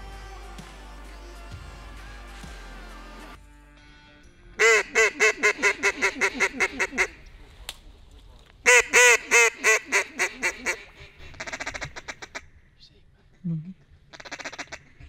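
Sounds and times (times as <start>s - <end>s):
duck call quacks: 4.6s - 7.2s, 8.7s - 12.5s, 14.1s - 15.0s.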